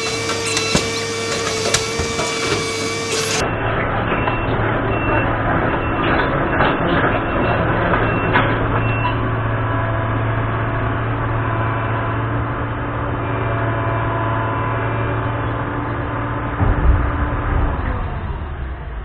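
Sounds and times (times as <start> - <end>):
knocks and clanks: 0.0 - 9.4, 16.5 - 19.0
excavator engine droning: 0.0 - 19.0.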